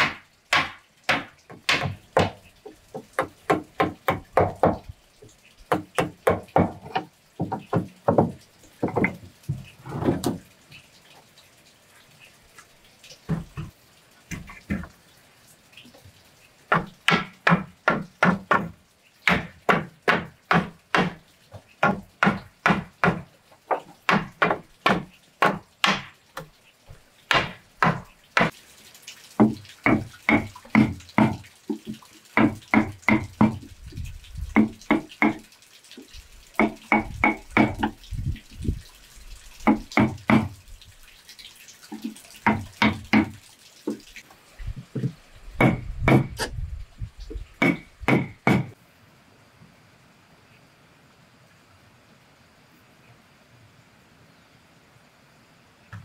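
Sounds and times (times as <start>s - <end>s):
hammer striking wood: 0.0s - 2.4s, 16.7s - 21.2s, 21.8s - 23.2s, 24.1s - 26.1s, 27.3s - 28.5s, 36.6s - 38.0s, 42.4s - 43.4s, 45.0s - 46.5s, 47.6s - 48.8s.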